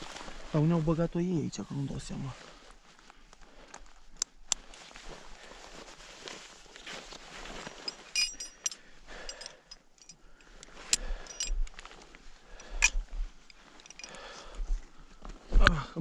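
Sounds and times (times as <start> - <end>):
short ringing jingle: 7.7 - 9.5
metal gear clinking and knocking: 7.7 - 10.2, 11.2 - 11.6, 13.8 - 14.2.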